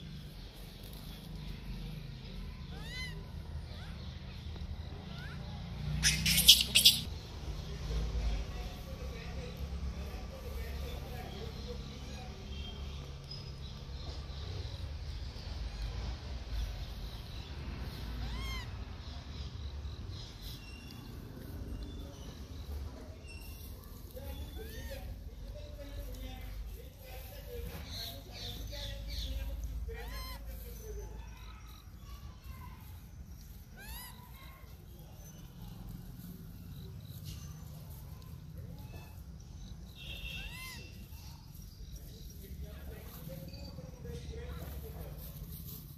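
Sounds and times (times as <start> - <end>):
faint monkey calls: 0.0 - 7.4, 8.7 - 45.9
baby monkey cooing: 2.7 - 7.1, 17.4 - 19.2, 29.9 - 35.5, 38.8 - 41.5
monkey coo call: 6.0 - 7.1, 18.2 - 18.9, 30.0 - 31.8, 40.2 - 41.4.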